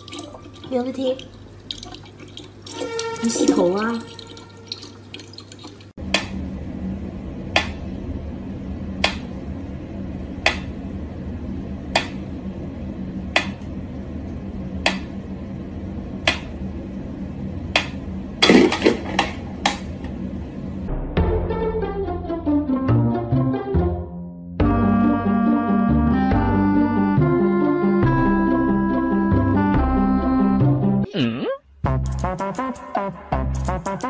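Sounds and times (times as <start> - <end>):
water dripping: 0.0 - 6.0
low hum: 6.0 - 22.8.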